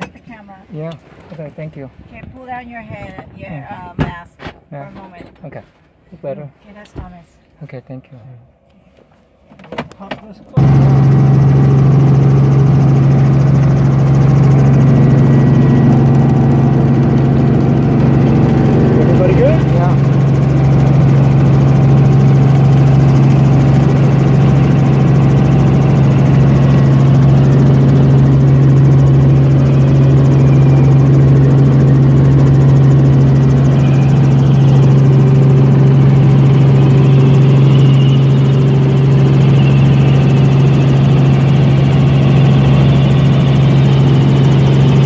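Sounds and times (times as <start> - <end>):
helicopter engine and rotors drone: 10.6 - 45.0.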